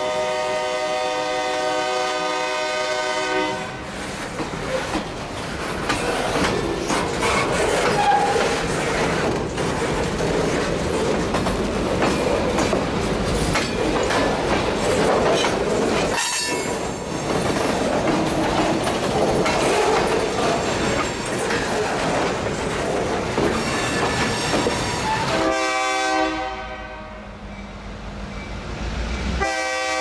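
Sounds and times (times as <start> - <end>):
steel wheels rumbling on rails: 0.0 - 30.0
wheels clicking over rail joints: 4.2 - 25.5.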